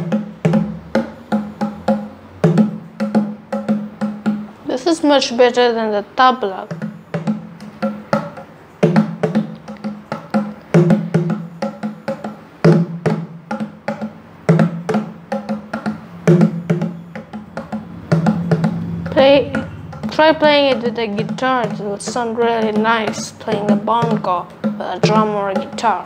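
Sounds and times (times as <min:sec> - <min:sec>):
bongo drums slaps and taps: 0:00.0 - 0:04.7, 0:06.5 - 0:26.0
deeper ringing drum stroke: 0:14.6 - 0:26.0.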